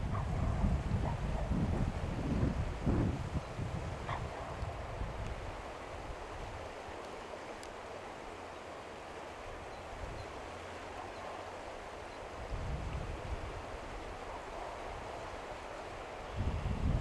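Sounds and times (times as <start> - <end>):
wind rumble on microphone: 0.0 - 6.9, 12.3 - 17.0
faint tick: 4.6 - 5.4, 7.0 - 7.8.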